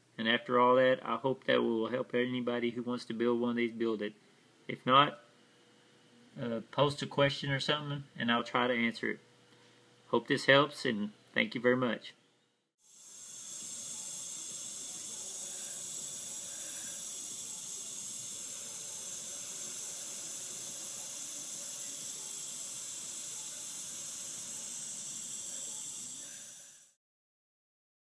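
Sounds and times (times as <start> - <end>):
smoke generator hissing: 12.8 - 27.0.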